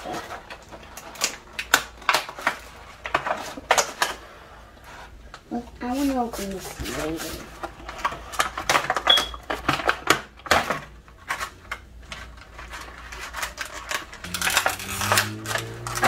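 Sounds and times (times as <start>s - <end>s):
plastic packaging crinkling: 11.2s - 16.0s
low steady hum: 11.3s - 16.0s.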